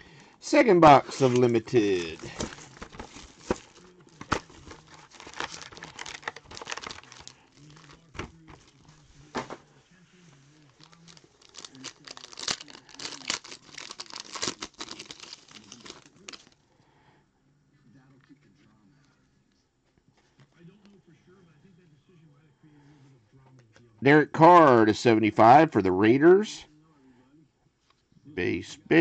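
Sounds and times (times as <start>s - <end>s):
plastic wrap crinkling and tearing: 0.6s - 8.8s, 10.6s - 16.6s.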